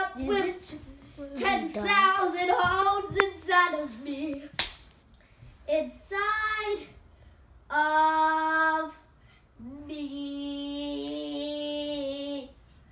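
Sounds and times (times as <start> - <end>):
boy singing without words: 0.0 - 4.6.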